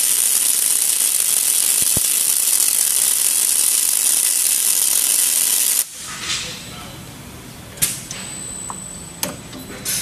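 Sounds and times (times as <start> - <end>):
welding arcs sizzling: 0.0 - 6.2.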